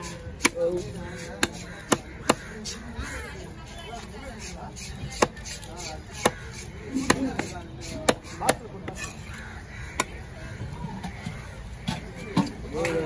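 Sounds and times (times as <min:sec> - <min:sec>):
knife chopping fish on wooden block: 0:00.0 - 0:02.8, 0:04.4 - 0:09.0.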